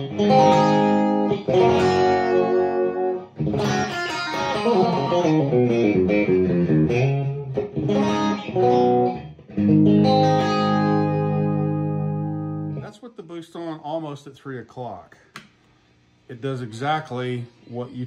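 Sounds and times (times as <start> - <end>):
electric guitar chords and notes: 0.0 - 12.9.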